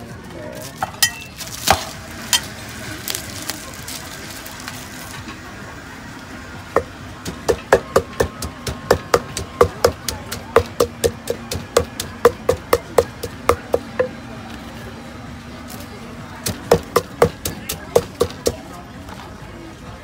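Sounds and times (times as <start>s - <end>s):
wooden pestle pounding in mortar: 6.7s - 14.2s, 16.4s - 18.6s.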